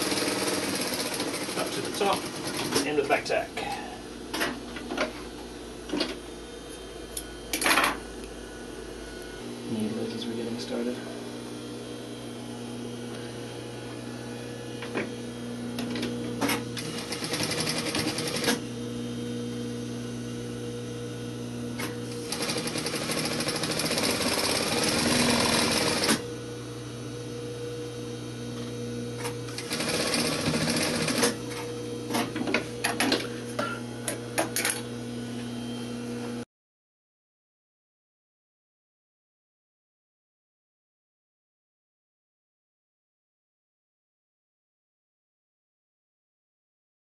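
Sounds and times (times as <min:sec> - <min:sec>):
sewing machine stitching: 0:00.0 - 0:02.8, 0:16.5 - 0:18.6, 0:22.2 - 0:26.2, 0:29.5 - 0:31.4.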